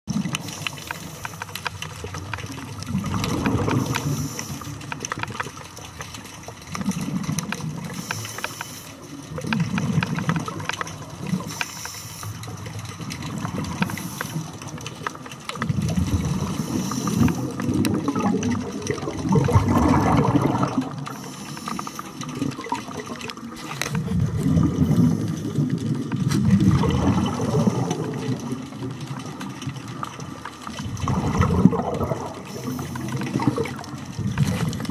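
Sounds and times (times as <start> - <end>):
underwater exhaled breath bubbling: 0.1 - 5.4, 15.6 - 34.9
faint crackling clicks: 0.1 - 34.9.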